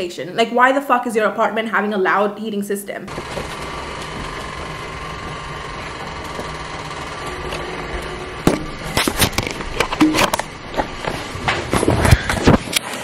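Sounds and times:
heater humming and whirring: 0:03.1 - 0:13.0.

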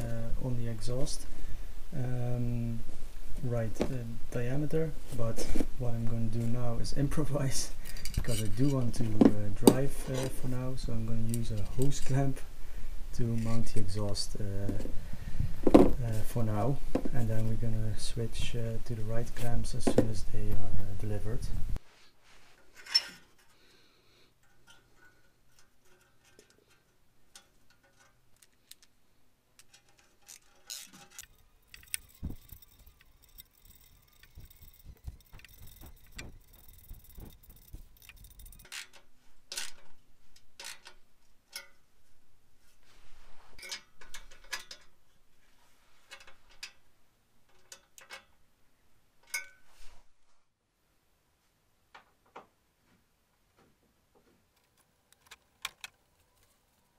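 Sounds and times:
scraping and handling noise: 0:05.0 - 0:12.5, 0:13.2 - 0:17.6, 0:19.1 - 0:48.4, 0:54.2 - 0:56.9
metallic clicks of hand tool: 0:29.6 - 0:39.8.

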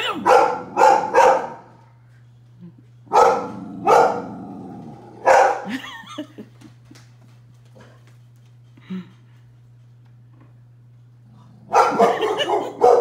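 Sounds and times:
dog barking: 0:00.0 - 0:01.8, 0:03.1 - 0:04.4, 0:05.2 - 0:05.7, 0:11.7 - 0:13.0.

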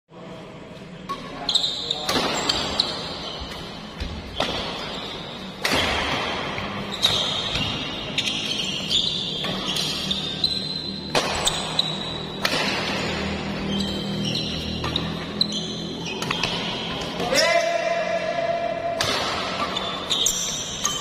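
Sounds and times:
sneakers squeaking on court: 0:01.1 - 0:17.2, 0:19.2 - 0:21.0
racket striking shuttlecock: 0:02.1 - 0:05.0, 0:05.6 - 0:07.9, 0:11.0 - 0:11.8, 0:12.4 - 0:13.2, 0:18.9 - 0:21.0.

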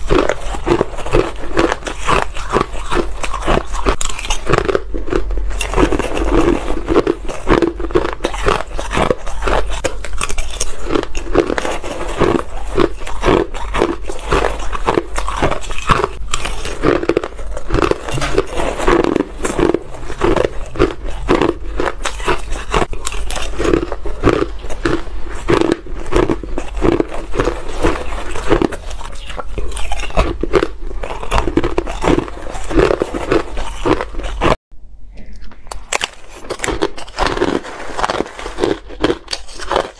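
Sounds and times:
chewing crunchy ice: 0:00.0 - 0:34.6, 0:35.7 - 0:39.9.

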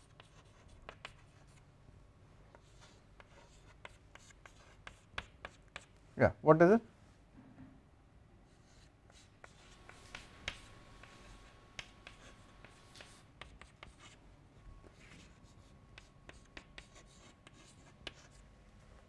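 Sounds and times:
chalk scratching on chalkboard: 0:00.0 - 0:01.6, 0:02.6 - 0:05.9, 0:08.6 - 0:14.2, 0:15.0 - 0:18.4
chalk tapping on chalkboard: 0:03.2 - 0:05.9, 0:09.1 - 0:14.0, 0:16.0 - 0:18.3.

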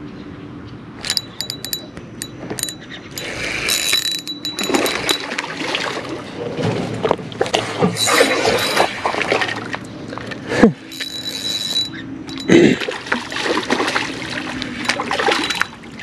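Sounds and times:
fishing reel clicks: 0:01.0 - 0:05.2.

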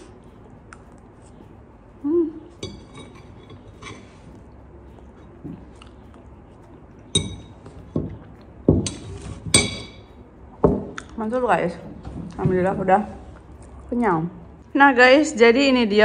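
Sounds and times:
dishes and cutlery clinking: 0:02.5 - 0:04.4, 0:07.0 - 0:11.0.

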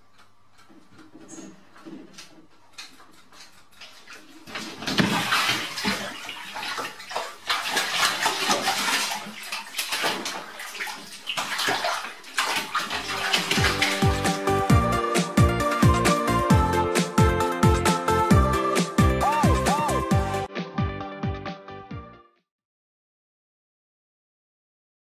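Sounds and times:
bath water splashing: 0:03.6 - 0:20.3.

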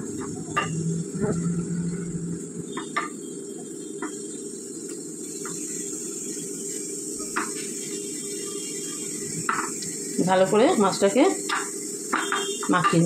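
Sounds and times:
low hum: 0:00.0 - 0:02.8
steady high hiss: 0:00.0 - 0:13.0.

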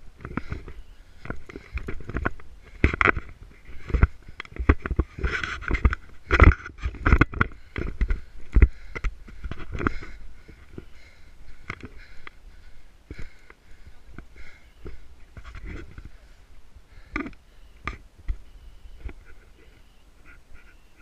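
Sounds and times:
running footsteps on dirt: 0:00.0 - 0:19.3
brush scraping and rustling: 0:00.2 - 0:08.6.

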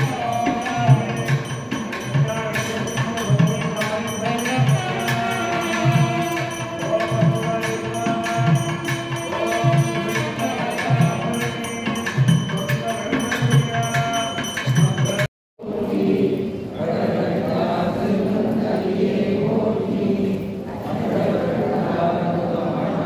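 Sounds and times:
devotional music with drum beat: 0:00.0 - 0:15.3
voices chanting: 0:15.6 - 0:23.0.

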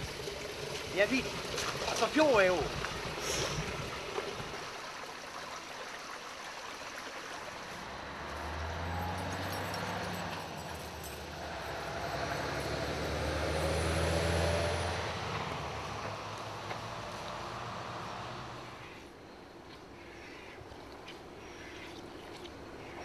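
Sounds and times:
distant vehicle engine hum: 0:06.8 - 0:23.0.

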